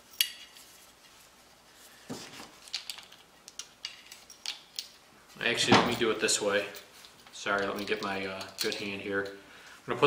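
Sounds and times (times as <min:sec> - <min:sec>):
small metal clicks and rattles: 0:02.6 - 0:05.0, 0:06.6 - 0:09.4.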